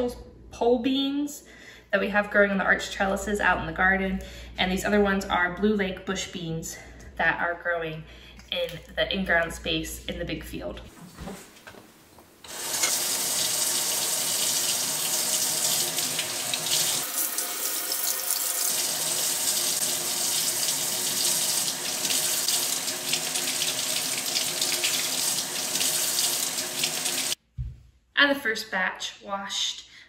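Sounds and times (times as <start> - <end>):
faucet water running: 12.5 - 27.4.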